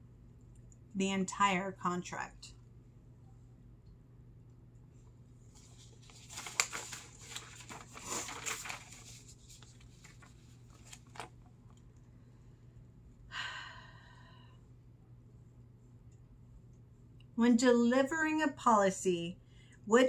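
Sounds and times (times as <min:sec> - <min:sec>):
low steady hum: 0:00.0 - 0:20.0
paper rustling and crackling: 0:05.5 - 0:11.8.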